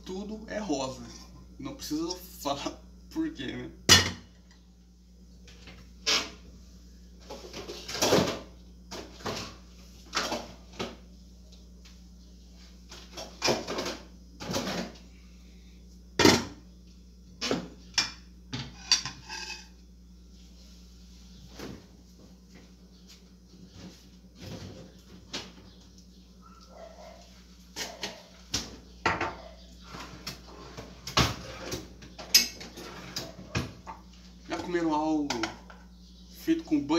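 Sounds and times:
cupboard doors and cookware clattering: 7.2 - 11.0, 12.9 - 15.0, 17.4 - 19.7, 26.8 - 35.8.

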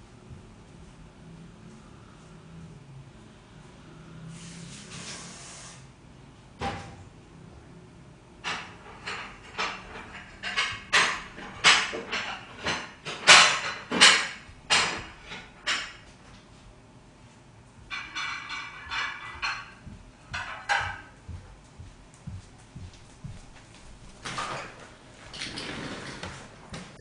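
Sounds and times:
household clicks and knocks: 17.9 - 21.5.

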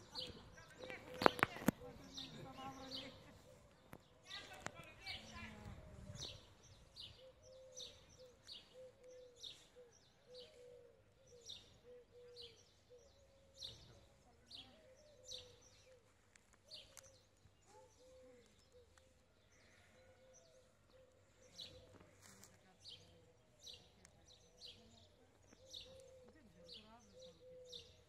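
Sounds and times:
bird hooting call: 7.0 - 16.0, 24.4 - 28.0.

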